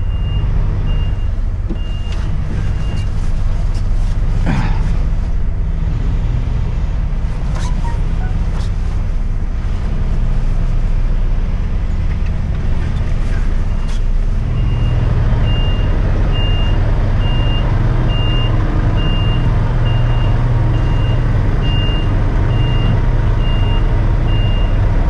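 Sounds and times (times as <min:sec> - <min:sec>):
lorry diesel engine running: 0:00.0 - 0:25.0
reversing alarm beeping: 0:00.1 - 0:03.0, 0:14.6 - 0:24.8.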